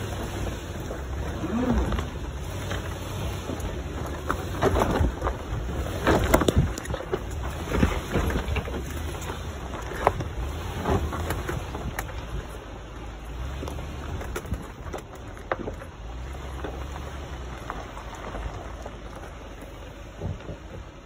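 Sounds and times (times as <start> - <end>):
tyres crunching over gravel: 0.0 - 21.0
vehicle rumble: 0.0 - 21.0.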